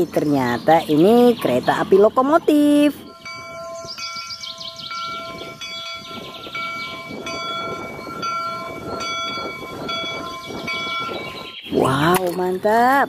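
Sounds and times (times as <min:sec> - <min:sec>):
locomotive bell ringing: 0:00.2 - 0:12.0.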